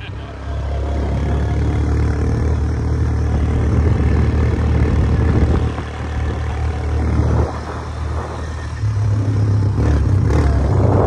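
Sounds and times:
quad bike engine running: 0.0s - 11.0s.

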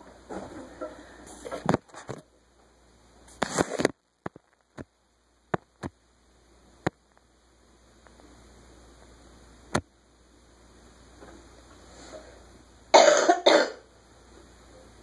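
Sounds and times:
faint hum: 0.0s - 15.0s
rustling scrape: 3.3s - 3.9s.

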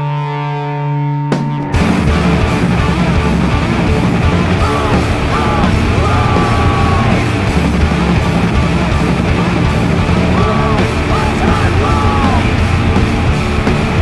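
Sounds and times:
punk band playing: 0.0s - 14.0s
person yelling vocals: 4.6s - 7.3s, 10.4s - 12.6s.

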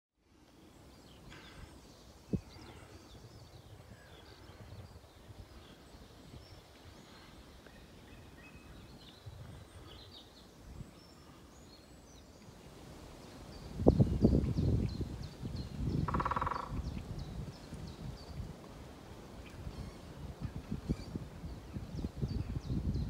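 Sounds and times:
small birds chirping: 0.4s - 18.5s.

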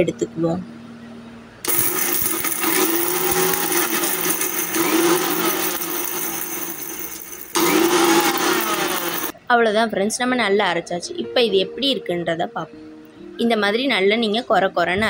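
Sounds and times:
mixer grinder grinding spices: 1.6s - 9.3s.

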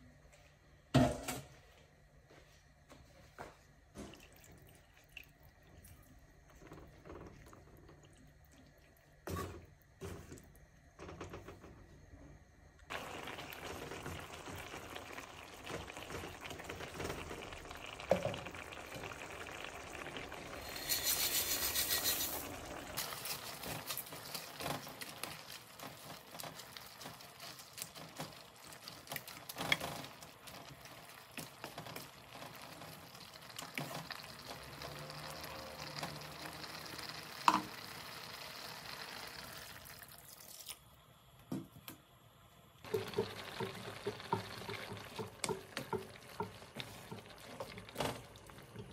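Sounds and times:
dry spaghetti pouring into pan: 12.9s - 40.8s
sauce bubbling and sizzling: 12.9s - 41.2s, 42.7s - 48.9s.

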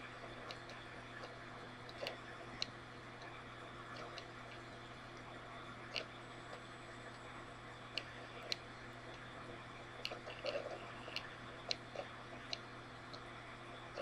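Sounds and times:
low hum and hiss: 0.0s - 14.0s.

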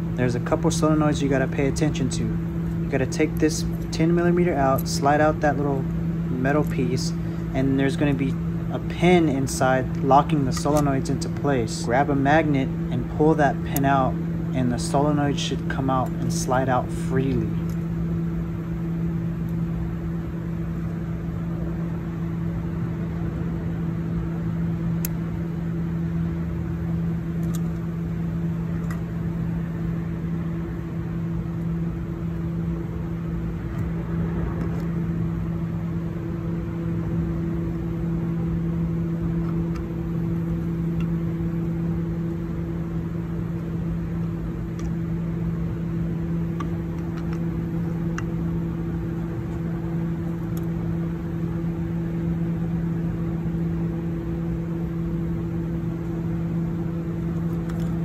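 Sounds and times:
mechanical hum: 0.0s - 58.0s.

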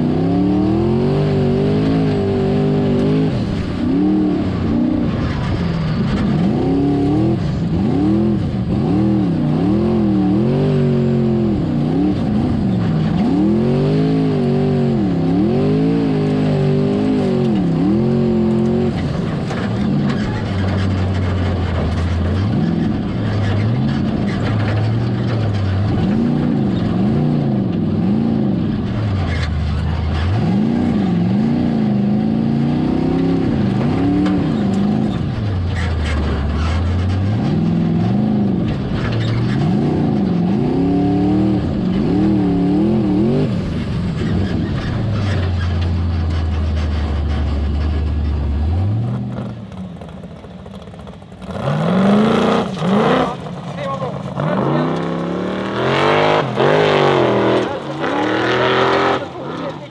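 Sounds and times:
car engine revving: 0.0s - 59.9s
car engine idling: 43.6s - 59.9s.

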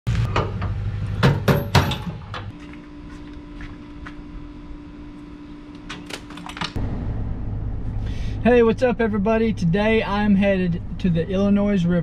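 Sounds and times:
steady hum: 0.1s - 12.0s
metal clanks and knocks: 0.3s - 2.5s.

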